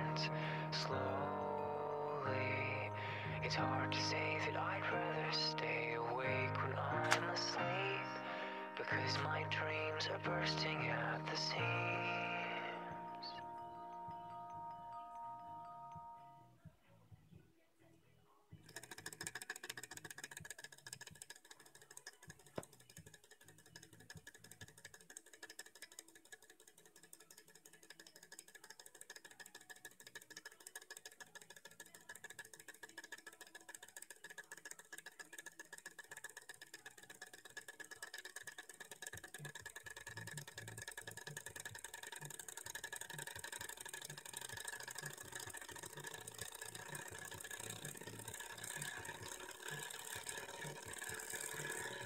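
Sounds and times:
stirling engine clicking rattle: 18.6s - 52.0s.

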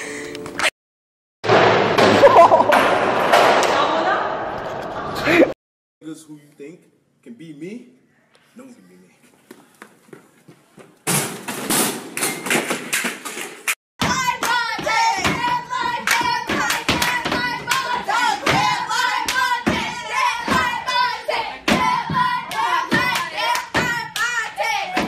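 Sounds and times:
rhythmic stomps on desks: 14.0s - 21.0s, 21.6s - 25.0s
rhythmic clapping: 14.0s - 25.0s
voices singing along: 14.1s - 25.0s.

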